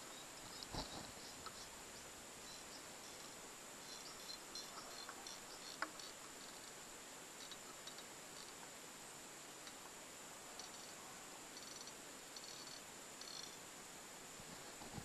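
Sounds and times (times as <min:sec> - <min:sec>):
faint high chirps: 0:00.0 - 0:06.8, 0:10.5 - 0:13.6
quiet hiss: 0:00.0 - 0:15.0.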